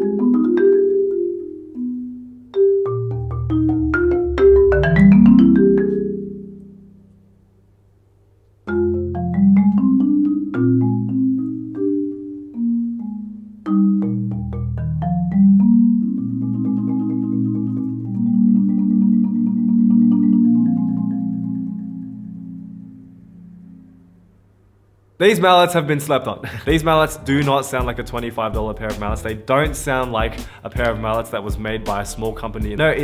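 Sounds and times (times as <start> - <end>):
marimba played with mallets: 0.0 - 6.9, 8.7 - 23.8.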